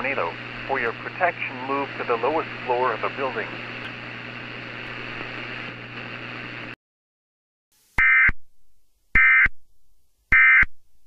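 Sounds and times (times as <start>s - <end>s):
hissy humming static: 0.0s - 6.8s.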